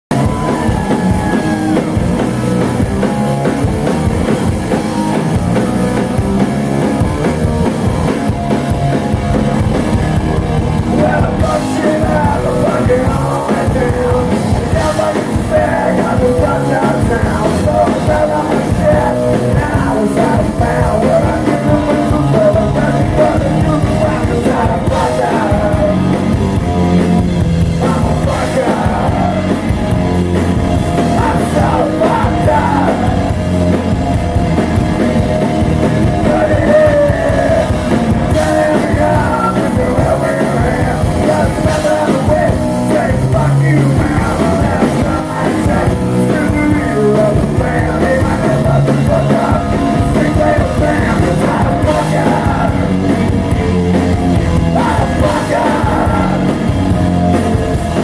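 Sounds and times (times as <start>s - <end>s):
drum kit with cymbals: 0.1s - 58.0s
electric guitars: 0.1s - 58.0s
person singing: 10.8s - 27.1s, 27.7s - 29.8s, 30.8s - 33.9s, 36.0s - 58.0s.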